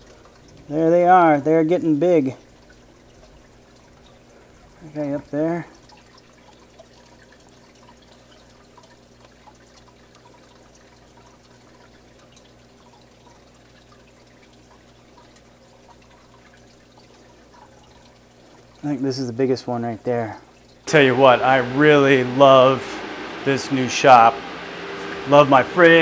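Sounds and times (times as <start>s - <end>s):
aquarium water trickling: 0.0s - 26.0s
steady low hum: 20.9s - 26.0s.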